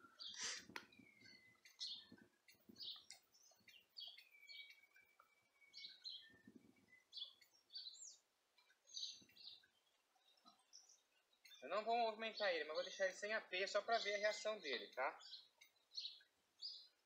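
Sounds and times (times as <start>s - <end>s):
thin whistled bird notes: 0.0s - 11.6s
faint birdsong chirps: 0.0s - 17.0s.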